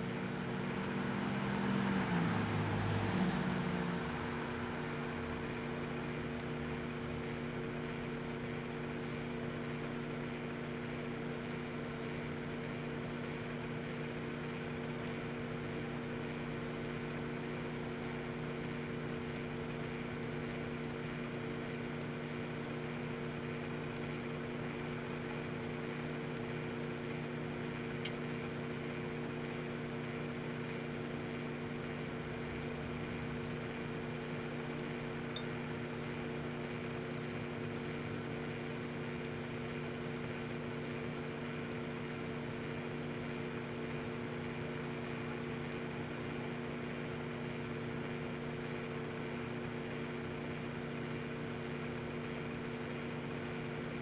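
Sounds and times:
microwave oven humming: 0.0s - 54.0s.

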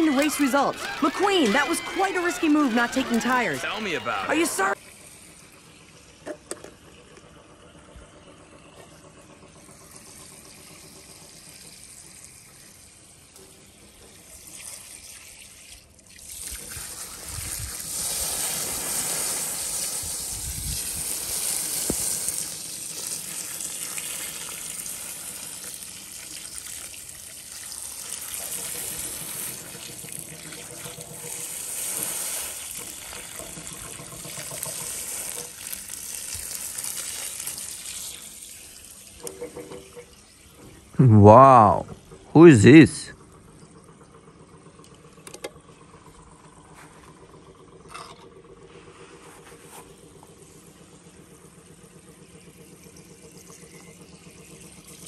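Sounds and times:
hose water spraying: 0.0s - 5.6s, 9.8s - 40.0s.

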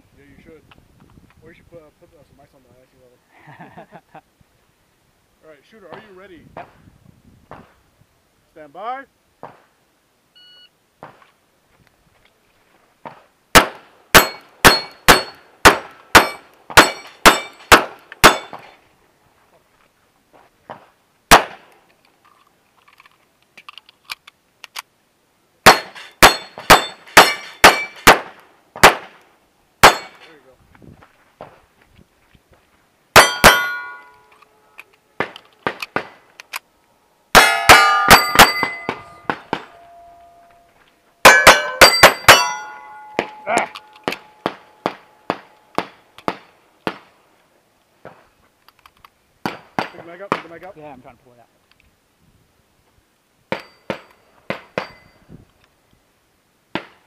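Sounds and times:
pistol shots: 13.5s - 18.6s, 21.3s - 21.7s, 25.6s - 29.2s, 29.8s - 30.2s, 33.2s - 34.1s, 37.4s - 39.8s, 41.2s - 47.1s
metallic ringing: 14.1s - 15.4s, 16.2s - 18.6s, 25.7s - 28.1s, 29.8s - 30.3s, 33.2s - 34.8s, 37.3s - 45.6s, 53.6s - 54.2s, 54.8s - 55.3s.

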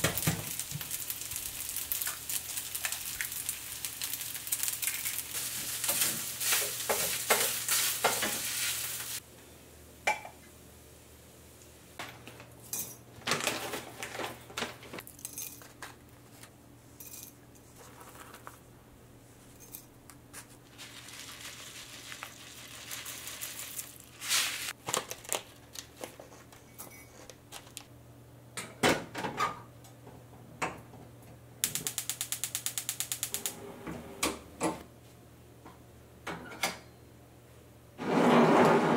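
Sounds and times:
sizzling hiss: 0.0s - 9.2s, 31.6s - 33.5s
dishes and utensils clinking: 26.6s - 27.3s
rapid clicks: 31.6s - 33.4s.

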